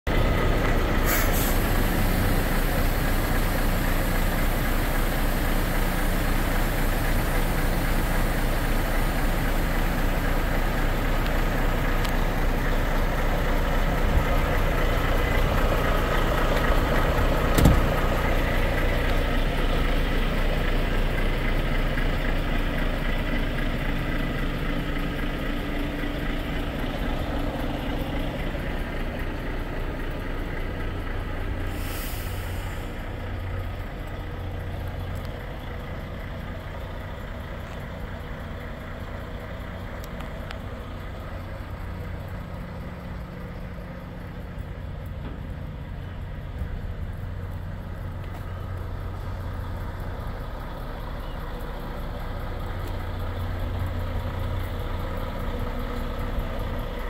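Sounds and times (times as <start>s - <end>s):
diesel engine idling: 0.1s - 57.0s.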